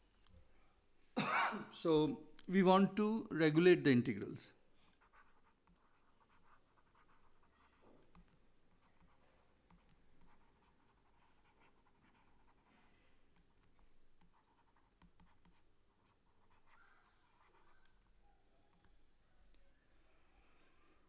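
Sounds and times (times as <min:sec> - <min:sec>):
stylus scratching on tablet: 0:04.8 - 0:19.2.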